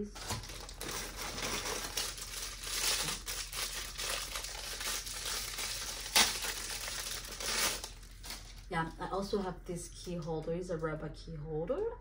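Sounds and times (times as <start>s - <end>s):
packaging crinkling and rustling: 0.0s - 8.7s.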